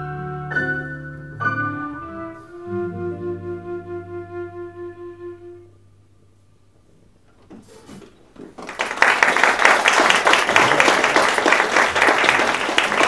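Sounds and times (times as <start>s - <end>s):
audience applauding: 8.5s - 13.0s.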